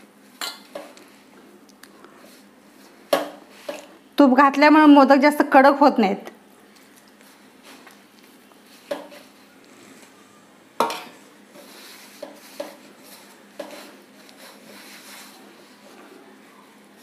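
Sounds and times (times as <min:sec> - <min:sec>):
hands rubbing dough in steel bowl: 0:11.5 - 0:17.0.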